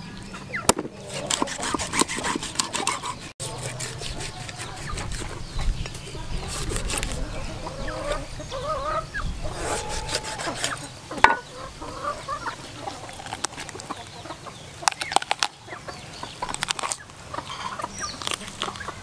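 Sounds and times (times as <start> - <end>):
chickens clucking: 0.0 - 19.0
cleaver chopping on wooden board: 0.7 - 3.0.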